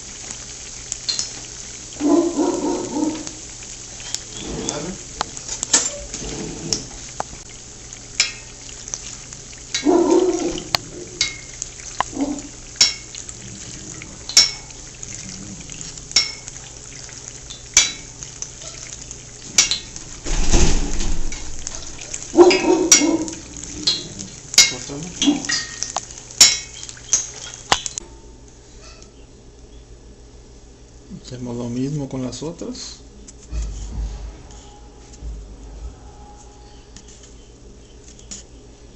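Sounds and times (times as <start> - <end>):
food sizzling in hot oil: 0.0 - 28.0.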